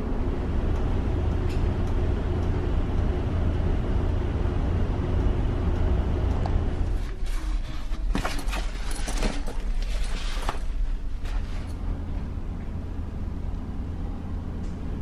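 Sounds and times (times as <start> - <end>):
ferry engines humming: 0.0 - 8.2, 10.6 - 15.0
backpack rustling and clicking: 7.1 - 11.7.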